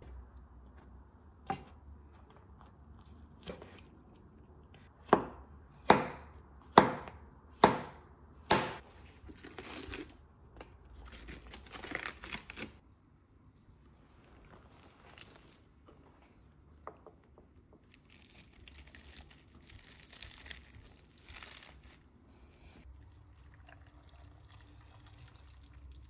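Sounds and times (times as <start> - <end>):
knife chopping on wooden board: 5.0 - 8.8.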